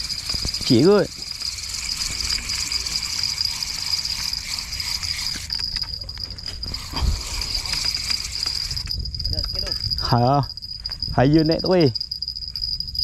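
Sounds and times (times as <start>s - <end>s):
fishing reel ticking: 0.0s - 10.1s
insects chirring: 0.0s - 13.0s.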